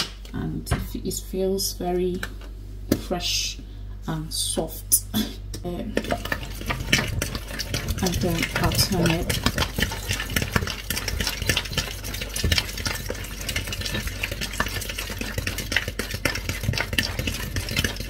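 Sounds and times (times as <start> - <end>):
fork beating in plastic bowl: 6.0 - 18.0.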